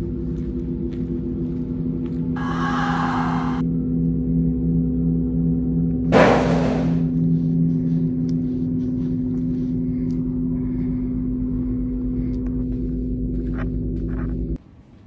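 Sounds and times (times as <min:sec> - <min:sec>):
low droning horror score: 0:00.0 - 0:14.6
heavy gong-like hit: 0:06.0 - 0:07.2.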